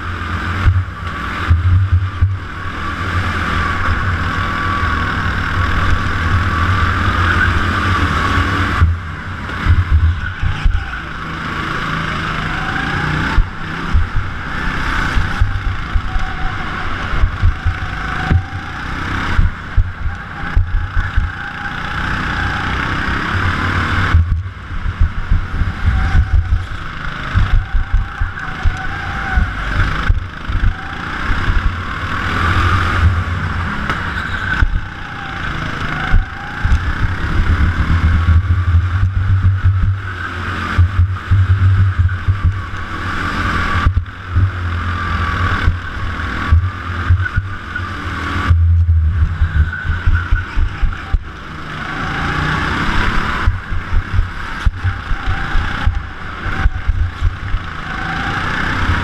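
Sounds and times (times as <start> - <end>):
go-kart engine revving: 0.0 - 59.0
low rumble: 0.6 - 2.8, 13.3 - 21.5, 24.0 - 34.9, 36.1 - 40.1, 40.8 - 42.9, 43.6 - 44.7, 45.6 - 51.4, 53.4 - 57.7.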